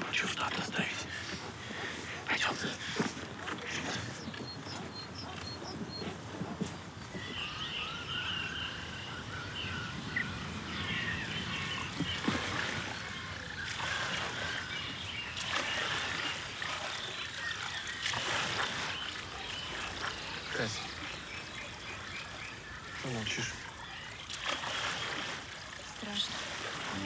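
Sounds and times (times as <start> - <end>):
birds chirping: 0.0 - 27.0
faint trickling water: 0.0 - 27.0
frogs calling: 0.0 - 27.0.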